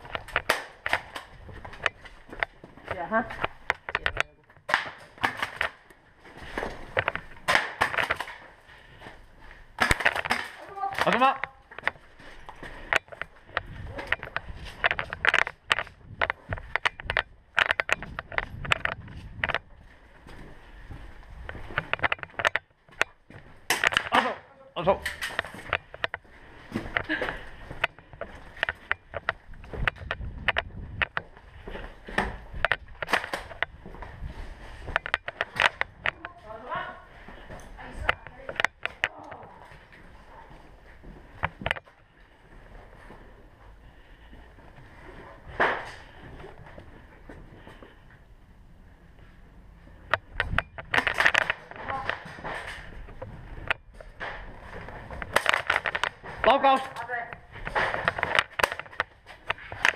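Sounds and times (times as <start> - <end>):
sharp clicks and knocks: 0.0 - 5.9, 9.8 - 19.7, 21.4 - 24.2, 25.0 - 26.2, 27.8 - 34.1, 34.8 - 36.4, 38.0 - 39.4, 41.4 - 41.9, 50.0 - 59.9
footsteps: 0.0 - 59.9
clothing and gear rustling: 5.2 - 24.2, 25.1 - 59.9
camera handling rumble: 6.6 - 8.4, 12.8 - 19.8, 21.4 - 24.1, 26.8 - 36.4, 38.0 - 39.1, 41.3 - 41.9, 49.9 - 56.2, 57.3 - 59.9.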